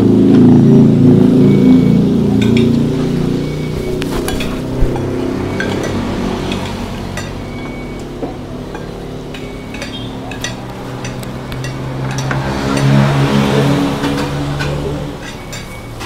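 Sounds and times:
low engine-like hum: 0.0s - 16.0s
spoons and dishes clinking: 4.1s - 13.0s, 13.9s - 16.0s.

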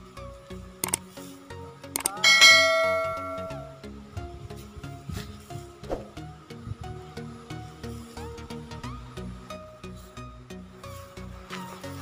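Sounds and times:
melody over low bass notes: 2.0s - 4.5s.

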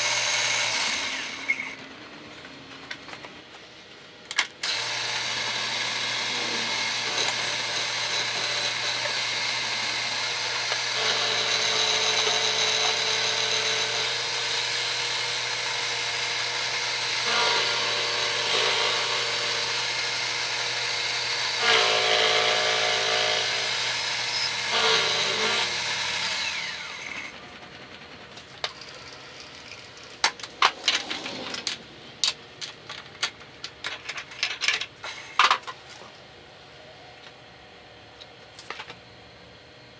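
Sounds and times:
milling machine cutting metal: 4.6s - 27.4s.

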